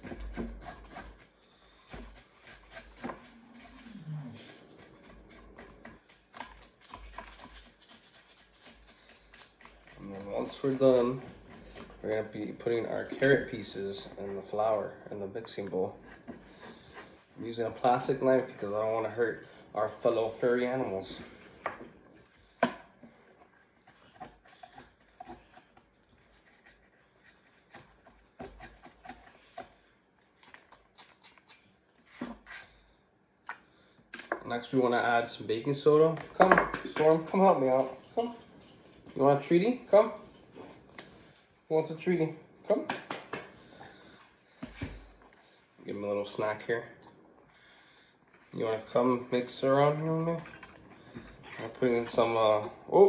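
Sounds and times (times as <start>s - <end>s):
knife scraping a carrot: 0.0s - 17.2s, 23.5s - 32.9s
low voice-like sound: 3.8s - 4.6s.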